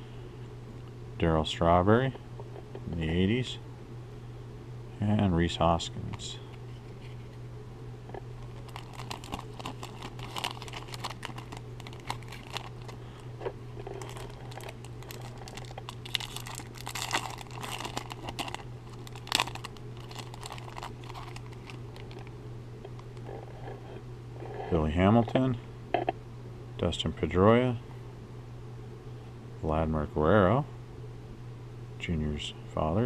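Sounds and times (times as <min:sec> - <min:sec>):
card pack wrapper crinkling and tearing: 0:08.4 - 0:22.3.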